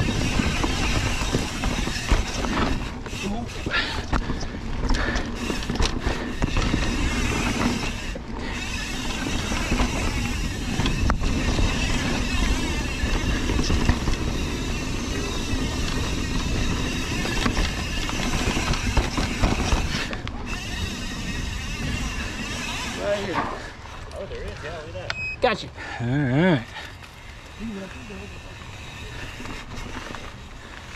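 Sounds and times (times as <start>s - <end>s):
wind rush on microphone: 0.0s - 22.6s
bike rattling over bumps: 0.0s - 25.0s, 25.8s - 30.9s
tyres rumbling over dirt trail: 0.0s - 30.9s.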